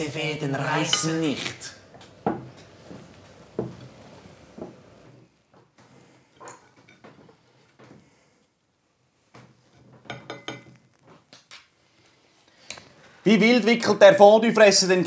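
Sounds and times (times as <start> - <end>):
forks clinking on plates: 0.8 - 1.4.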